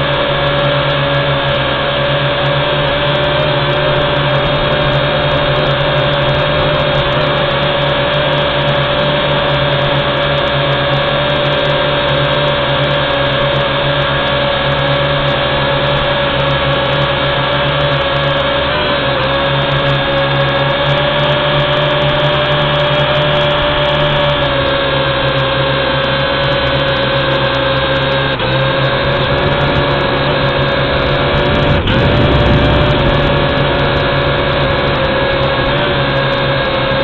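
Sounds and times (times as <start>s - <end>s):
drone motors whining: 27.4s - 37.0s.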